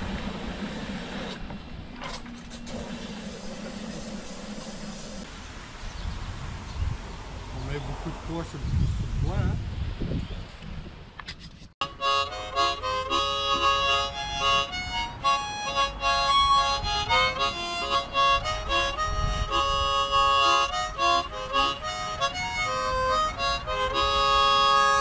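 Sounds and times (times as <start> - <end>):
harmonica playing folk tune: 11.8 - 25.0.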